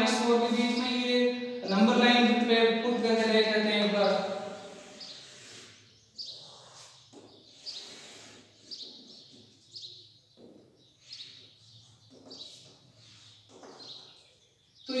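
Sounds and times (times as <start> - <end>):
chalk squeaking on a blackboard: 4.5 - 9.7, 10.9 - 14.2.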